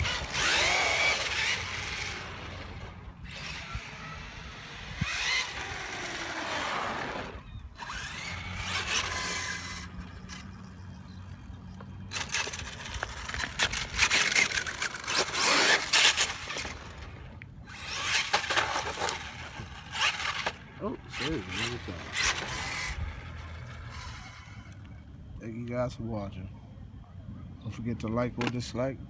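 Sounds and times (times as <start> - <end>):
electric motor and gears whining: 0.0 - 25.4
tyres scrabbling on asphalt: 11.8 - 24.9.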